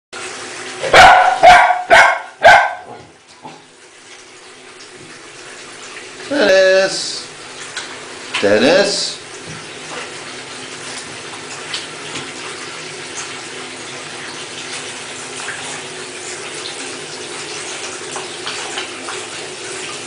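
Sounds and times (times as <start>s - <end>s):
water running into bathtub: 0.2s - 20.0s
light water splashes: 7.2s - 20.0s.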